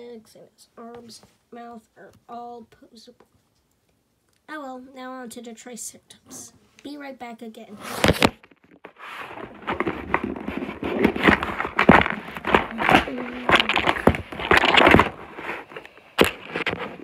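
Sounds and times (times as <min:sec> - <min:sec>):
packaging crinkling: 0:07.9 - 0:17.0
sharp knocks and scrapes: 0:07.9 - 0:17.0.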